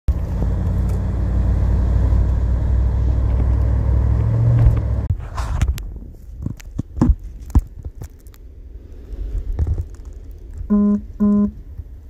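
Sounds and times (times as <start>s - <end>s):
vehicle engine and road noise: 0.1s - 12.0s.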